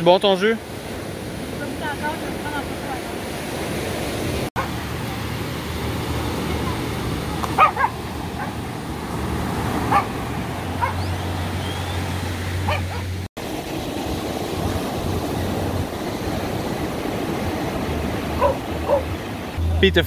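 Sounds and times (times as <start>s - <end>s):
surf breaking: 1.5s - 20.0s
dogs barking in short yips: 7.6s - 8.6s, 12.7s - 13.1s, 18.4s - 19.1s.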